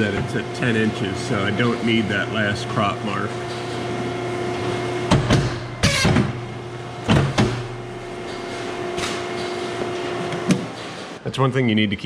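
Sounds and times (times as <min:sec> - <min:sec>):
paper cutter machine hum: 0:00.0 - 0:11.2
machine knocks: 0:05.0 - 0:06.4, 0:07.0 - 0:09.6.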